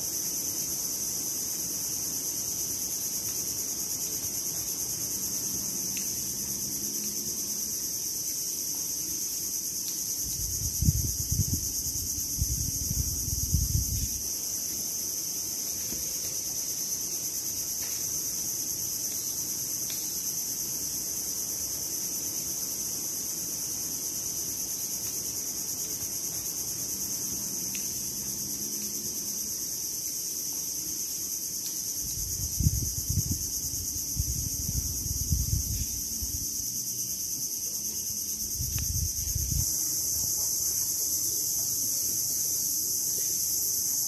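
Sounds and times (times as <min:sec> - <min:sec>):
crickets chirping: 0:00.0 - 0:44.0
wind gusts on microphone: 0:10.2 - 0:14.3, 0:32.0 - 0:36.6, 0:38.4 - 0:40.3.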